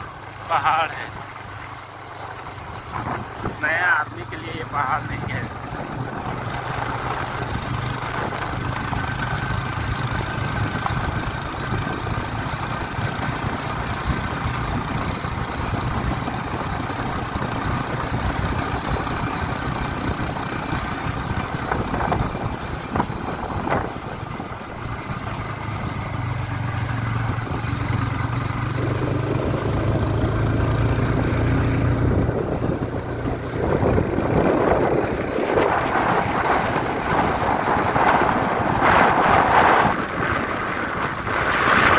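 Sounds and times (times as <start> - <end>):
vehicle engine running: 0.0 - 41.9
wind noise on microphone: 2.9 - 3.6, 20.1 - 24.8, 32.0 - 41.9.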